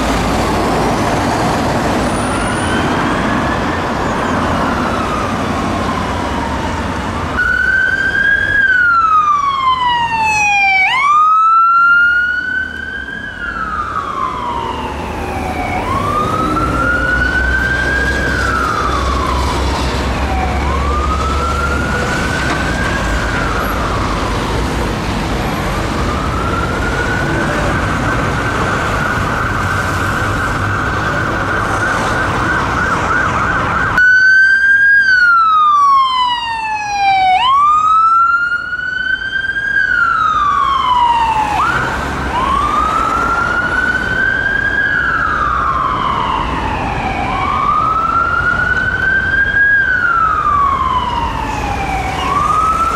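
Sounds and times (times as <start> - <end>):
ambulance siren wailing: 0.0 - 52.9
low rumble of traffic: 0.0 - 52.9.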